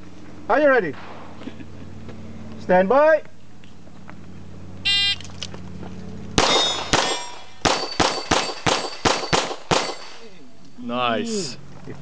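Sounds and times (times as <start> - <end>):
steel plates ringing: 6.4 - 10.2
pistol shots: 6.4 - 10.3.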